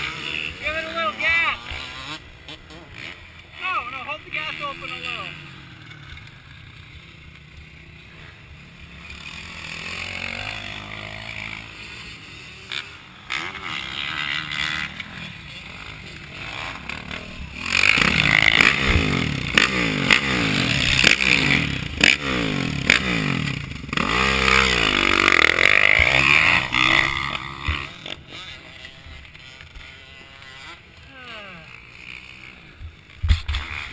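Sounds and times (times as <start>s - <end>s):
motorcycle engine revving: 0.0s - 33.9s.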